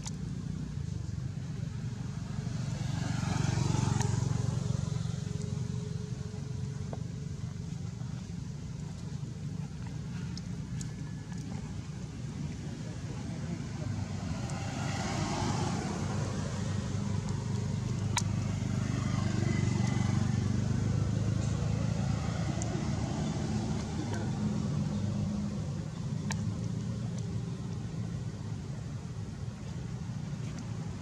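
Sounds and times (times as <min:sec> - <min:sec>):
low motor rumble: 0:00.0 - 0:31.0.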